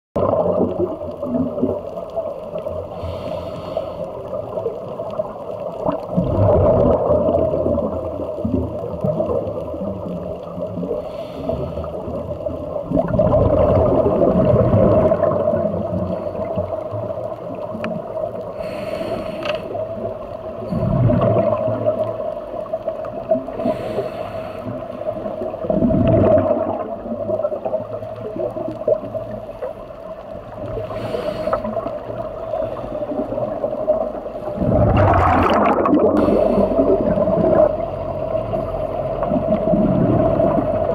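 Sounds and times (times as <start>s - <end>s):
exhaled bubbles rumbling: 0.2s - 18.8s, 19.6s - 40.9s
regulator inhalation hiss: 2.9s - 4.2s, 11.0s - 12.2s, 18.6s - 19.8s, 23.6s - 24.9s, 30.8s - 32.0s.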